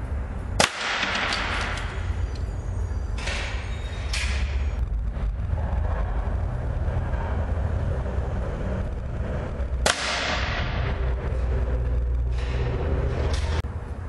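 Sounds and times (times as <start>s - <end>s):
steady low hum: 0.0s - 14.0s
air rifle shot: 0.6s - 1.8s.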